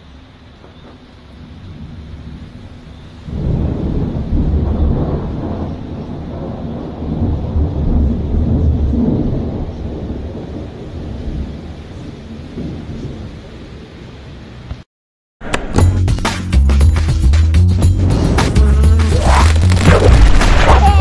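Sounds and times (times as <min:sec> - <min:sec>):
steady rain: 0:00.0 - 0:14.9, 0:18.2 - 0:21.0
rolling thunder: 0:03.2 - 0:13.6, 0:18.0 - 0:21.0.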